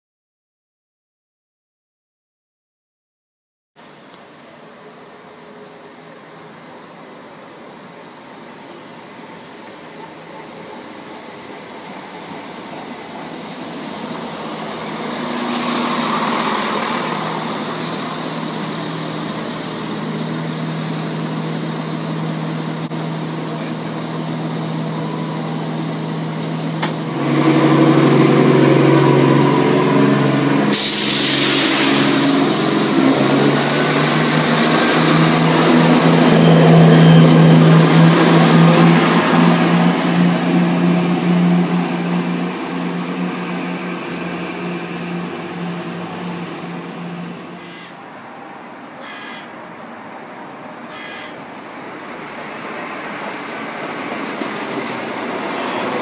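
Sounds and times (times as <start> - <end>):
diesel train engines: 3.9 - 56.0
air hiss: 12.3 - 23.2, 30.5 - 36.2.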